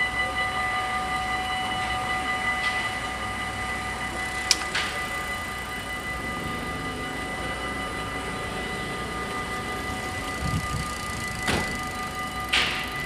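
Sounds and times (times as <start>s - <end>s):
level crossing warning bells: 0.0s - 13.0s
barrier click: 4.4s - 5.0s.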